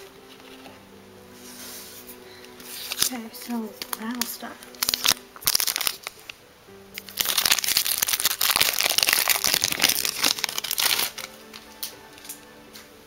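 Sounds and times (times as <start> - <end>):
foil wrapper crinkling: 2.6 - 6.4, 7.0 - 12.4.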